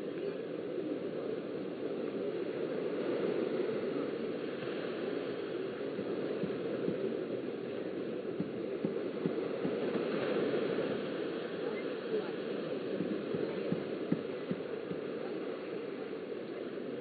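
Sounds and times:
small waves breaking on a beach: 0.0 - 17.0.

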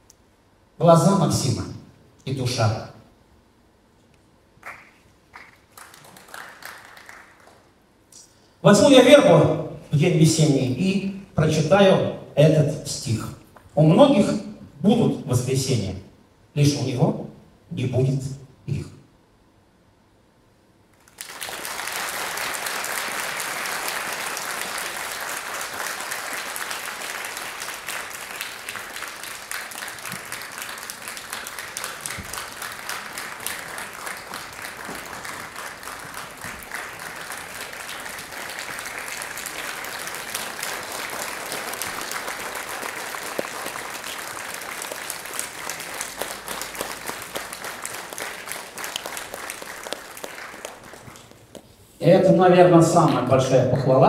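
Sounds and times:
large audience applauding: 4.6 - 7.8, 21.0 - 51.6.

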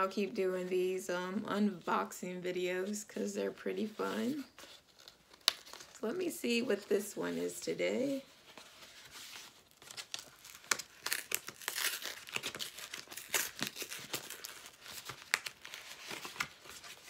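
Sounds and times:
paper tearing: 9.7 - 16.8.

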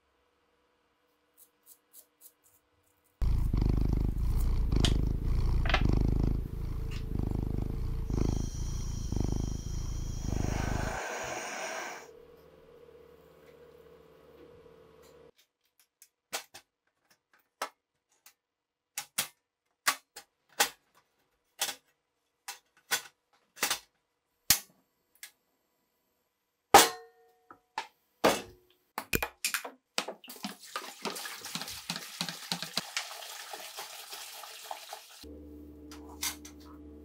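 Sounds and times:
water pouring into pan: 30.3 - 35.2.

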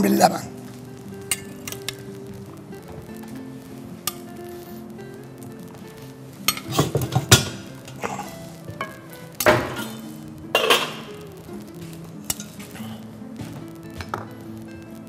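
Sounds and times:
soft background music: 0.0 - 15.0
metal tongs clinking on ceramic: 10.6 - 11.1.

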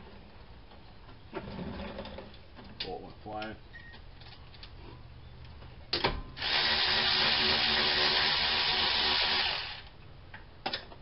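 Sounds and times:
cordless electric ratchet running: 6.4 - 9.9.

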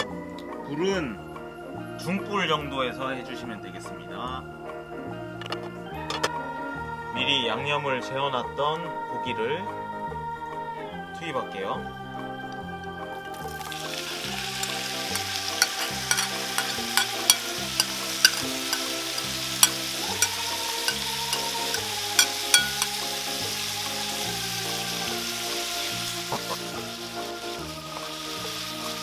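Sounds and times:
meat sizzling in hot oil: 13.3 - 29.0.

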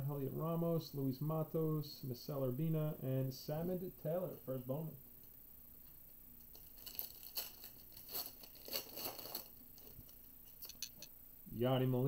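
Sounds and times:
foil wrapper tearing and crinkling: 6.5 - 10.3.

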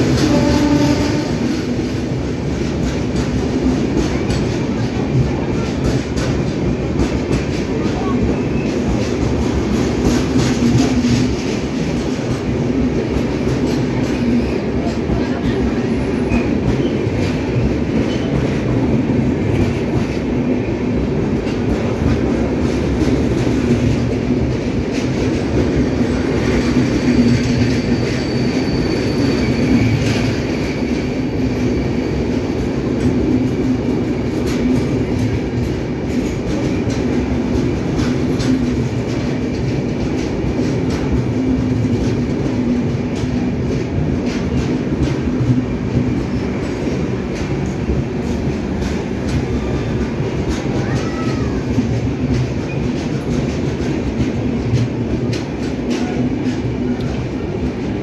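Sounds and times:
train wheels rumbling on rails: 0.0 - 58.0
faint high wheel squeal: 26.9 - 30.1
wheels clicking and clattering: 32.2 - 58.0.

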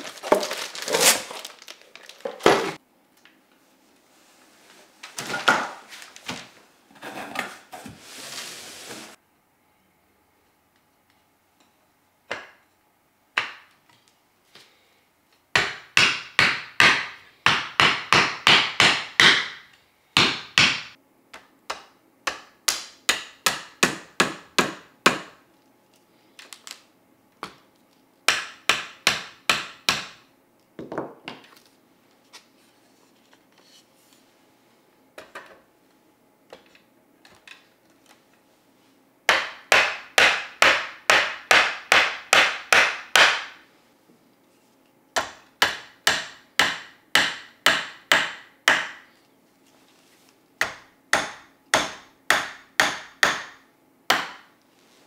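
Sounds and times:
rubber mallet striking wood: 15.6 - 20.9, 39.3 - 43.6, 45.2 - 49.0, 50.6 - 54.4.

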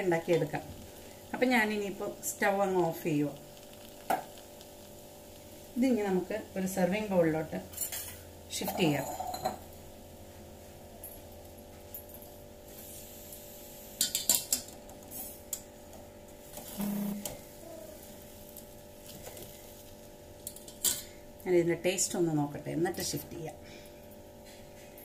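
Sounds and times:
steady low hum: 15.2 - 25.0.

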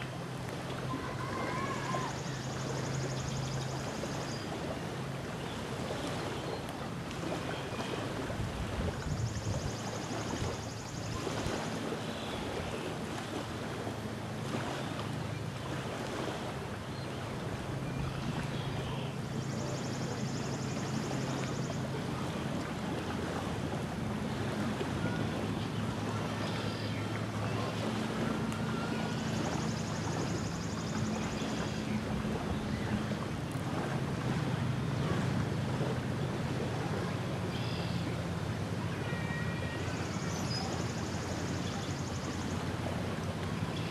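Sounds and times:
waves lapping on a sandy shore: 0.0 - 43.9
wind buffeting the microphone: 8.0 - 10.6.

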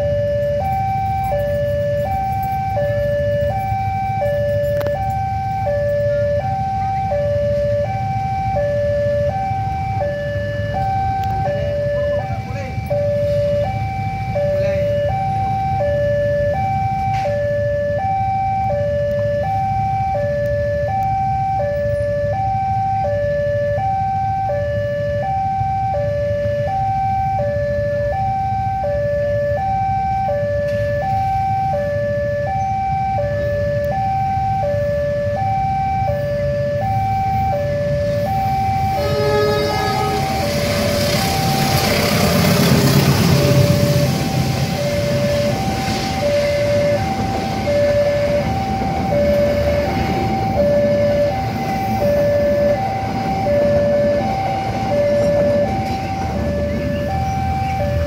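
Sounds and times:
two-tone level crossing alarm: 0.0 - 58.0
train rumble: 37.8 - 58.0
train horn blast: 38.9 - 44.0.

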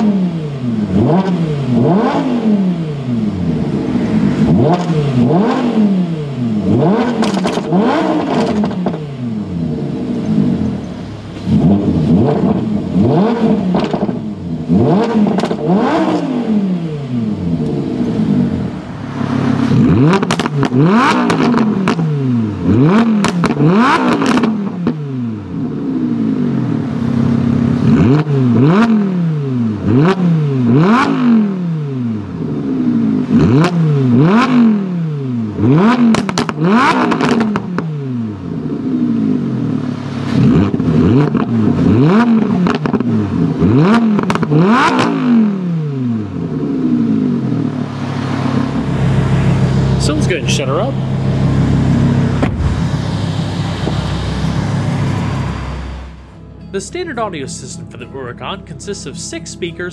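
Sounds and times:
sports car engine revving: 0.0 - 59.9
car engine idling: 2.7 - 28.0, 46.0 - 59.9.

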